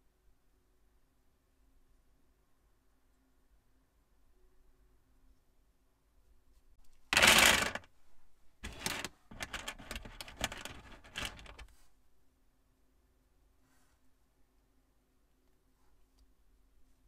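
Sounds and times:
fingers rattling loose plastic pieces: 7.2 - 7.9, 8.6 - 11.7
plastic pieces clattering onto table: 7.2 - 7.9, 8.6 - 11.7.

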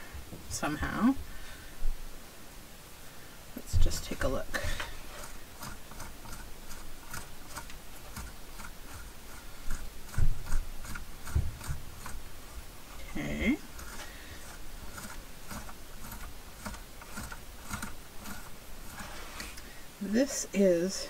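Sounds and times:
dull knocks: 11.3 - 11.9.

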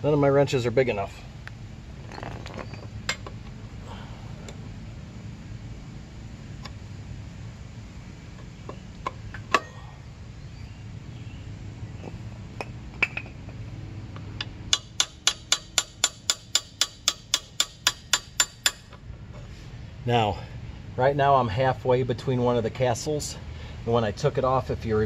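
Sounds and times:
hammer tapping wrench: 14.4 - 18.9
wrench clicking on metal: 14.4 - 19.0.

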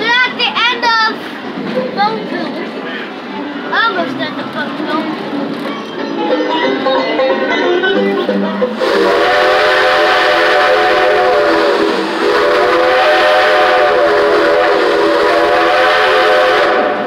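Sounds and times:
steam locomotive chime whistle: 7.9 - 17.0.

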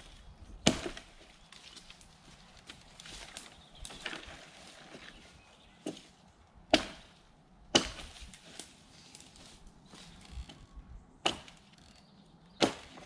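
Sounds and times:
axe chopping wood: 0.6 - 1.2, 6.7 - 8.3, 11.2 - 11.6, 12.6 - 13.0.

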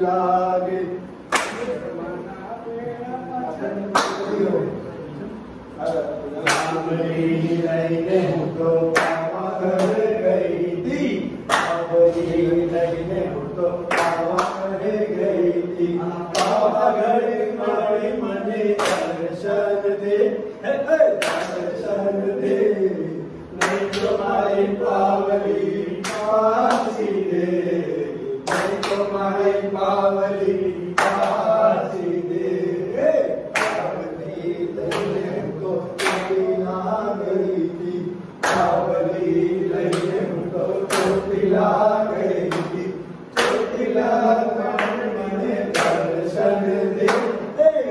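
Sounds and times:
men singing in unison: 0.0 - 4.8, 5.8 - 47.9
sharp hand claps: 1.3 - 1.8, 3.9 - 4.4, 5.8 - 6.9, 8.9 - 10.0, 11.4 - 12.0, 13.9 - 14.7, 16.3 - 16.7, 18.7 - 19.2, 21.1 - 21.7, 23.6 - 24.2, 25.9 - 27.1, 28.4 - 29.2, 31.0 - 31.5, 33.5 - 34.0, 34.8 - 35.3, 36.0 - 36.4, 38.4 - 38.9, 39.8 - 40.2, 40.8 - 41.4, 42.4 - 43.7, 44.7 - 45.0, 45.7 - 46.2, 47.0 - 47.4.

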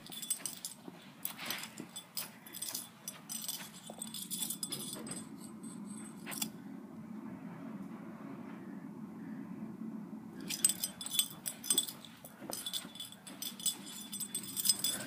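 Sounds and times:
metal tags and chain jingling: 0.0 - 6.6, 10.4 - 15.0
steady low hum: 0.0 - 15.0.

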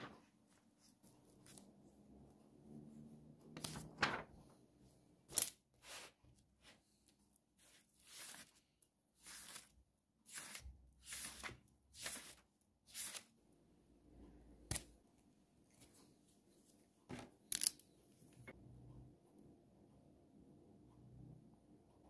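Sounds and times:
paper pages rustling: 3.6 - 4.4.

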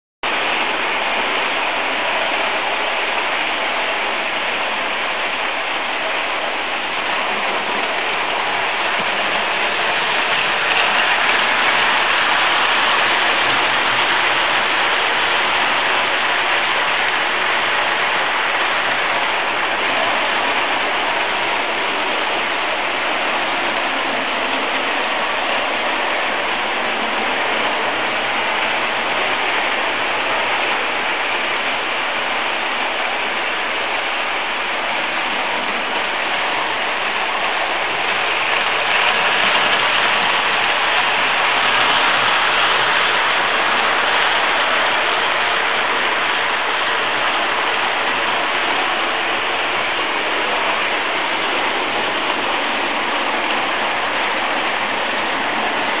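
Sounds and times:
model train wheels rolling on rail: 0.2 - 56.0.

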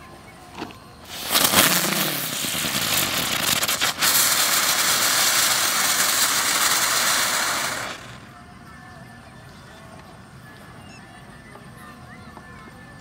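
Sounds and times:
firecracker hissing: 1.0 - 8.4.

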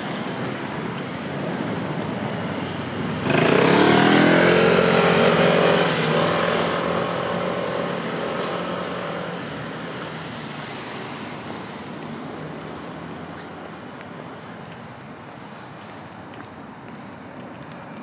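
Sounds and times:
traffic hum: 0.0 - 18.0
vehicle accelerating past: 3.1 - 9.4.

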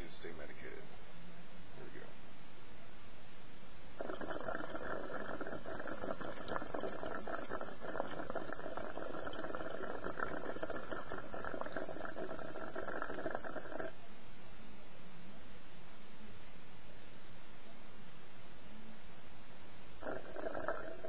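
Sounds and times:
water bubbling in bong: 4.0 - 14.0, 20.0 - 21.0.

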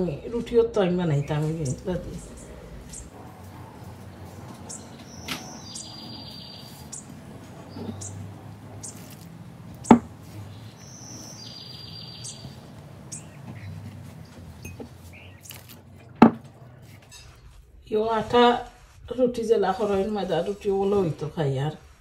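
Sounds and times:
birds chirping and trilling: 0.0 - 17.4.

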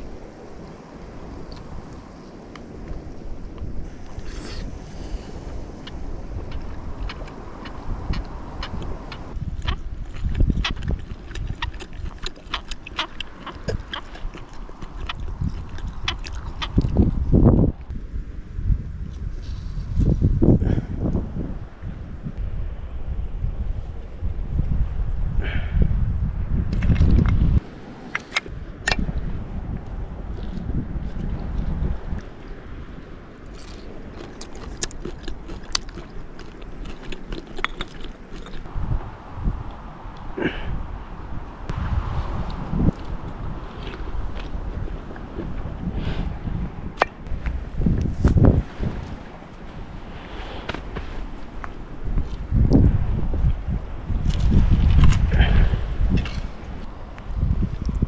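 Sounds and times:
wind buffeting microphone: 0.0 - 58.0
chewing: 5.4 - 17.9, 28.0 - 29.1, 30.3 - 32.3, 33.5 - 38.7, 42.4 - 46.4, 54.2 - 56.5.

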